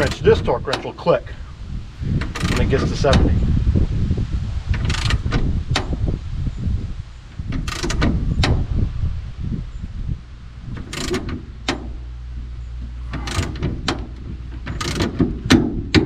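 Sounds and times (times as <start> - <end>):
torque wrench metallic clicks: 0.0 - 1.0, 2.2 - 3.3, 4.7 - 6.0, 7.5 - 8.6, 10.7 - 11.9, 13.0 - 15.7
low background rumble: 0.0 - 16.0.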